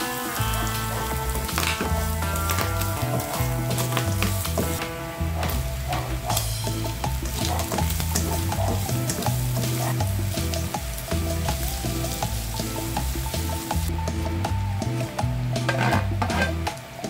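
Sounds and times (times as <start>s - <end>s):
meat sizzling in a frying pan: 0.0s - 13.9s
background music with bass line: 0.0s - 17.0s
spatula scraping a pan: 15.6s - 16.7s.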